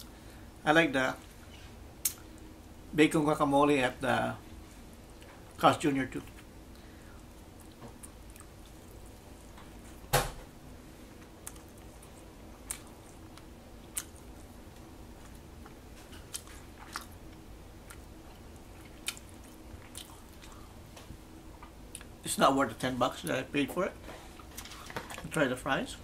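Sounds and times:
person chewing food: 0:06.3 - 0:10.1, 0:11.1 - 0:22.1.

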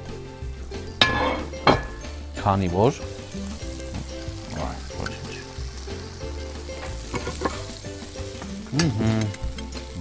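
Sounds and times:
background music: 0:00.0 - 0:10.0
omelette sizzling in a pan: 0:03.1 - 0:10.0.

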